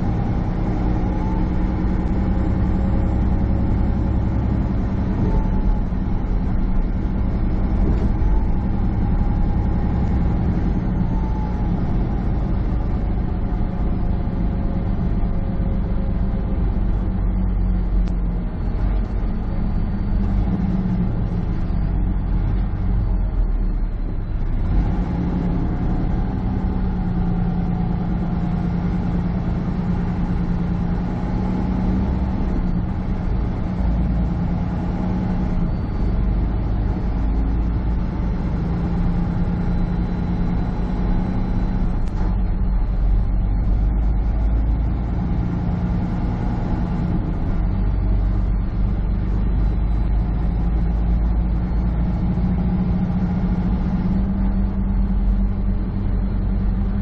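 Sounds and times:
road noise: 0:00.0 - 0:57.0
truck diesel engine droning: 0:00.0 - 0:57.0.

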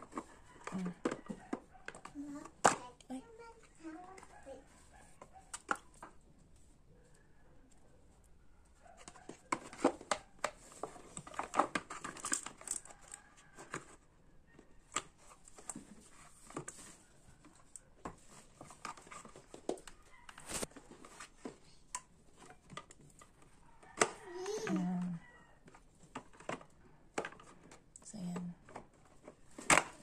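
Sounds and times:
plastic rustling and clicking: 0:08.8 - 0:14.0, 0:14.8 - 0:30.0.

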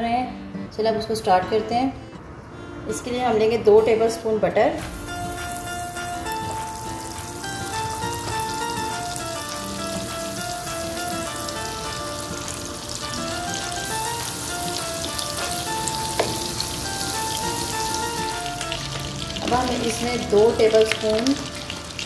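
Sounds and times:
butter sizzling in a frying pan: 0:04.8 - 0:22.0
quiet instrumental melody: 0:04.8 - 0:22.0.

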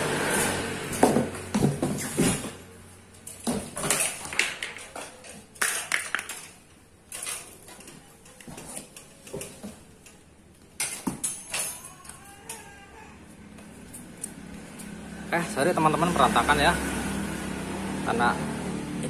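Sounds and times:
bicycle metal clinks and rattles: 0:00.3 - 0:12.8, 0:13.4 - 0:15.6.

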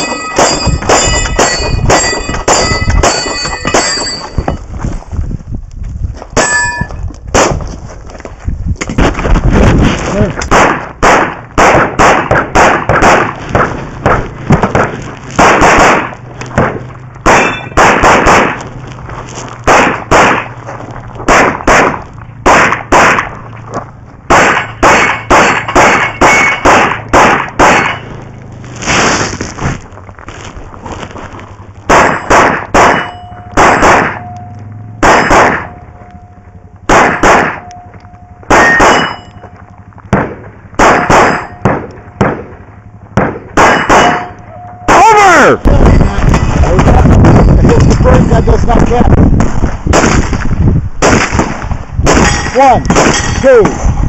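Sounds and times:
pistol shots: 0:00.0 - 0:04.2, 0:10.4 - 0:18.7, 0:19.6 - 0:20.6, 0:21.2 - 0:23.4, 0:24.2 - 0:28.2, 0:31.9 - 0:36.0, 0:36.8 - 0:37.9, 0:38.5 - 0:39.5, 0:40.1 - 0:46.5, 0:49.9 - 0:53.8
steel targets clanging: 0:00.0 - 0:04.7, 0:06.4 - 0:07.0, 0:17.2 - 0:17.8, 0:24.4 - 0:28.3, 0:32.0 - 0:36.6, 0:37.4 - 0:39.7, 0:40.8 - 0:42.2, 0:42.9 - 0:45.6, 0:52.1 - 0:54.0.

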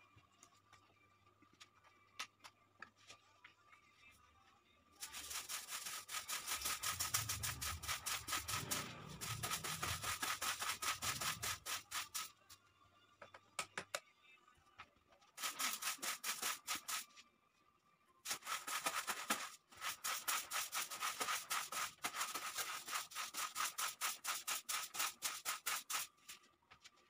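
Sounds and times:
brush scrubbing a rug: 0:05.0 - 0:12.3, 0:15.4 - 0:17.1, 0:18.3 - 0:26.3.

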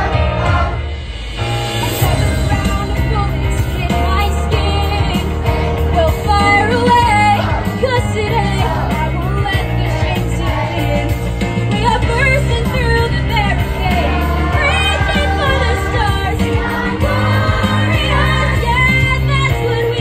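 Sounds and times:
children's choir singing: 0:00.0 - 0:00.9, 0:06.4 - 0:11.3, 0:13.2 - 0:20.0
instrumental accompaniment with bass: 0:00.0 - 0:20.0.

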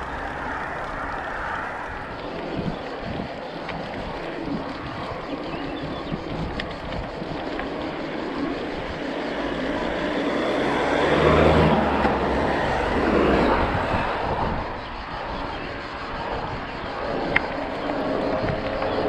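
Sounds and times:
wind rushing over microphone: 0:00.0 - 0:19.0
car passing close by: 0:09.8 - 0:14.8.

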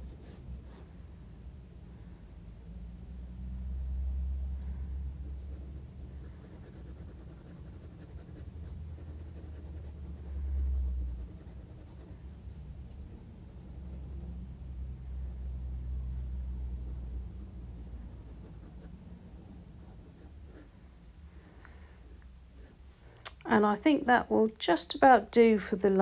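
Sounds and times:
low rumble: 0:00.0 - 0:24.4
felt-tip pen scratching on paper: 0:05.2 - 0:14.4, 0:16.1 - 0:20.7.

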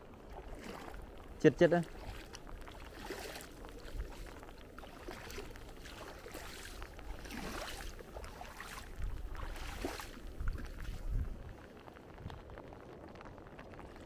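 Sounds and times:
feet splashing through water: 0:00.0 - 0:11.9
wind rumble on microphone: 0:00.0 - 0:14.0.

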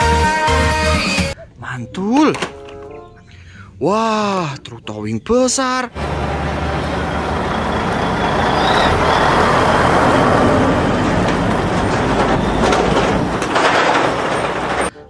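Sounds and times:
diesel truck driving past: 0:05.9 - 0:14.9.

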